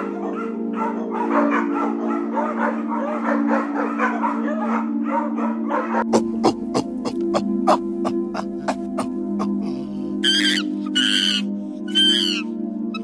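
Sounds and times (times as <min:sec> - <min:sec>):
background music held chord: 0:00.0 - 0:13.0
small dog yipping and whining: 0:10.2 - 0:13.0.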